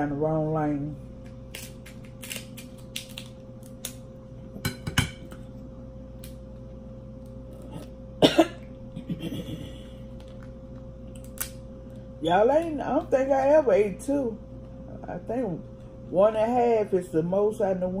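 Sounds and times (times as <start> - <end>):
crab shell cracking: 1.5 - 4.1, 10.1 - 11.7
person coughing: 8.2 - 9.8.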